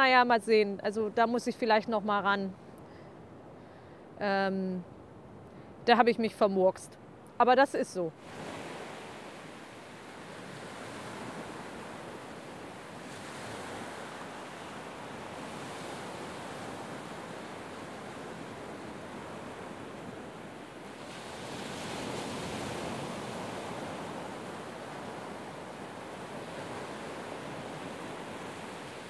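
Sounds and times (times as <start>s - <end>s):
wind: 0.0s - 29.0s
surf washing onto beach: 8.2s - 29.0s.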